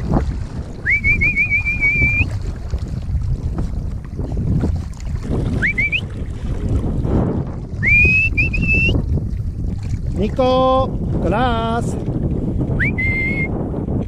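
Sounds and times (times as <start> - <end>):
river water sloshing: 0.0 - 12.8
wind buffeting microphone: 0.0 - 14.0
high whistle-like rising tone: 0.8 - 2.3, 12.8 - 13.5.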